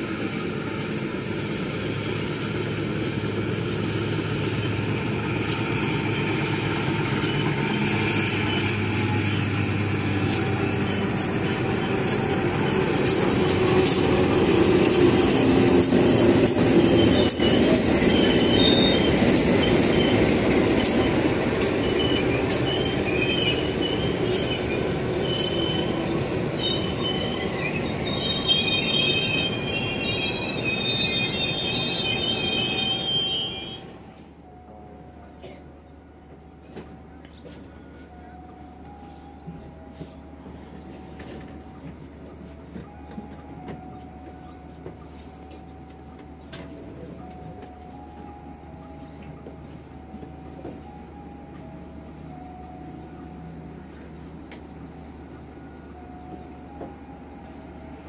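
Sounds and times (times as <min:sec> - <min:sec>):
diesel locomotive engine running: 0:00.0 - 0:58.0
high wheel squeals: 0:05.6 - 0:34.0.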